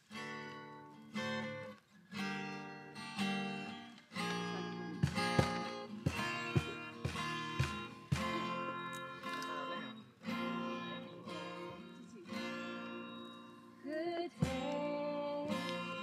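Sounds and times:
guitar chords strummed: 0:00.0 - 0:16.0.

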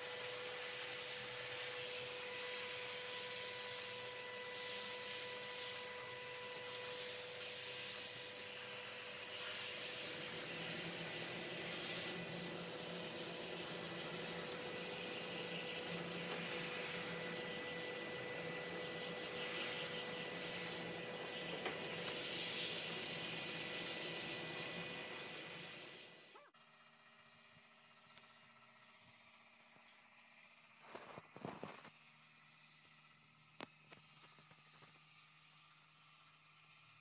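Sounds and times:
spray gun hissing: 0:00.3 - 0:26.2.

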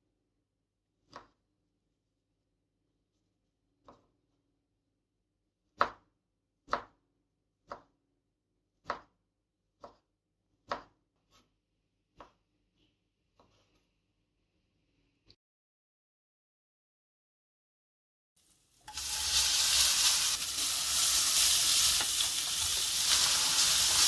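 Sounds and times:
knife chopping on wooden board: 0:05.8 - 0:07.0, 0:08.8 - 0:09.1, 0:10.6 - 0:11.0.

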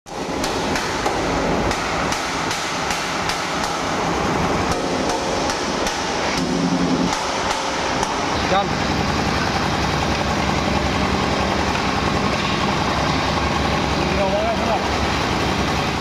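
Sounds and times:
chipping hammer striking steel plate: 0:00.1 - 0:08.2.

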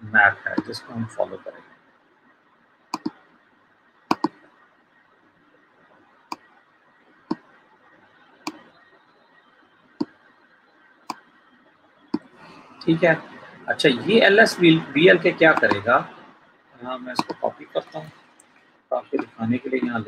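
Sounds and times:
computer mouse clicking: 0:02.9 - 0:03.2, 0:04.1 - 0:04.4, 0:06.3 - 0:06.5, 0:15.5 - 0:15.9, 0:17.2 - 0:18.6.

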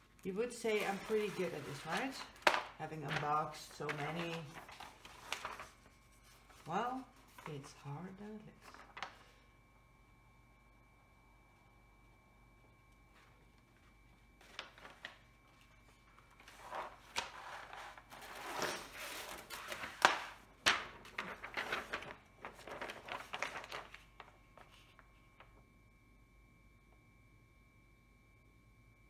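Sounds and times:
paper and plastic film rustling: 0:00.2 - 0:07.8, 0:08.5 - 0:09.4, 0:13.1 - 0:25.5.

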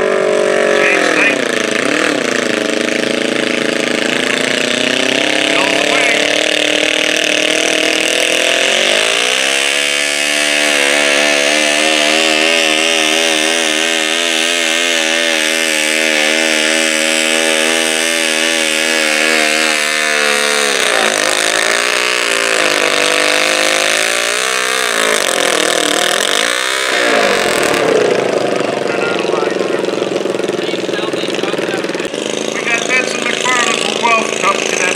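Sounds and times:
tractor engine revving under load: 0:00.0 - 0:34.9.

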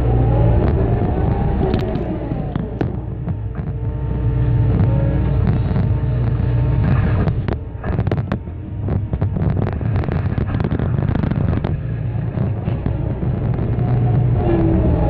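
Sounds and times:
excavator engine and hydraulics: 0:00.0 - 0:15.0
concrete cracking and clatter: 0:04.7 - 0:14.3.

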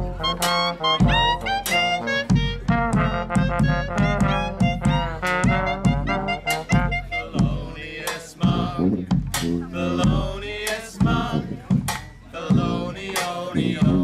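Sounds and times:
bass drum beating: 0:00.0 - 0:07.8, 0:08.4 - 0:14.0
clarinet: 0:00.0 - 0:07.8
trombone: 0:00.0 - 0:10.4, 0:13.6 - 0:14.0
man singing: 0:07.1 - 0:11.8, 0:12.4 - 0:14.0.

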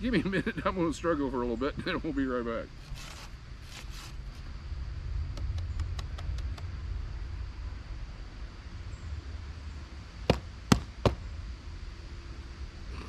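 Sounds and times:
steady low rumble: 0:00.0 - 0:13.0
loud sharp knocks: 0:10.3 - 0:11.2.

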